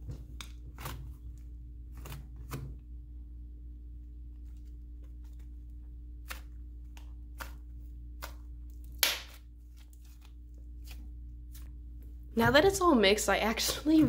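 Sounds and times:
slime being stretched and kneaded: 4.2s - 12.1s.

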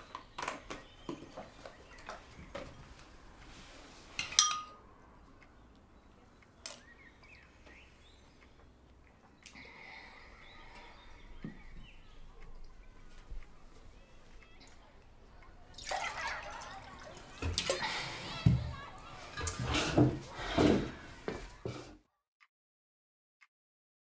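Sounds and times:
birds chirping: 0.0s - 3.4s, 4.2s - 19.4s
metal spoon clinking ceramic bowl: 4.3s - 4.8s
milk pouring into bowl: 15.7s - 18.6s.

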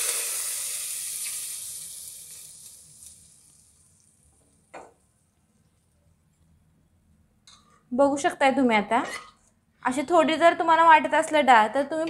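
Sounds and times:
hot oil sizzling: 0.0s - 4.4s.

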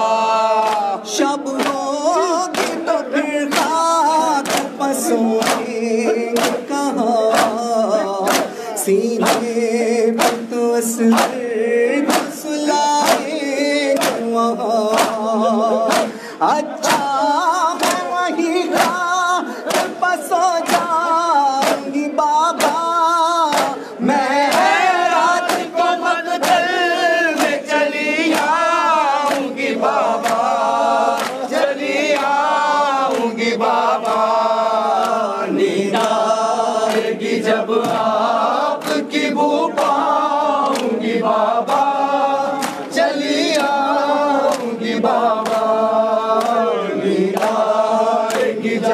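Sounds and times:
crowd of men chanting: 0.0s - 48.9s
chest-beating slaps: 1.5s - 22.9s, 23.5s - 23.8s, 24.4s - 32.4s, 41.6s - 44.7s.

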